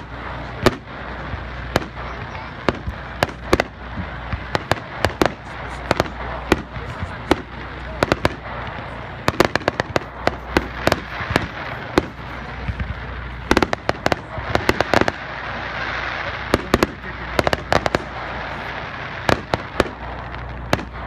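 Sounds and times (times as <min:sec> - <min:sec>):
fireworks crackling: 0:00.0 - 0:21.0
fireworks hiss: 0:00.0 - 0:21.0.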